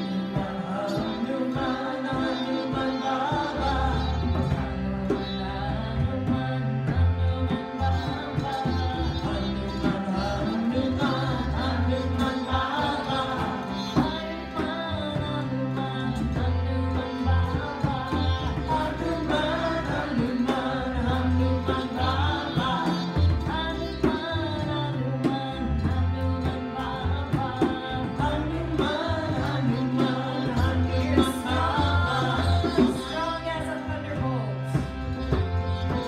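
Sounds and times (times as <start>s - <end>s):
women singing a mantra: 0.0s - 6.7s, 7.9s - 15.4s, 18.2s - 24.5s, 27.6s - 33.2s
harmonium chords: 0.0s - 36.0s
low bass line: 0.0s - 36.0s
tabla rhythm: 0.0s - 36.0s.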